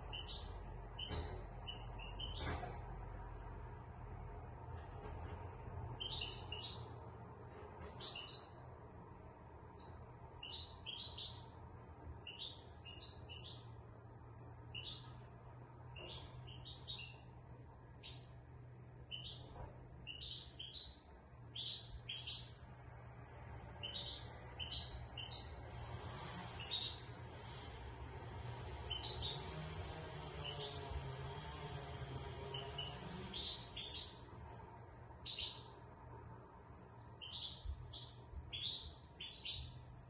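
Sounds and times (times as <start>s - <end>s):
steady low hum: 0.0s - 40.0s
goldfinch twittering: 26.6s - 27.1s, 28.9s - 29.4s, 32.5s - 34.3s.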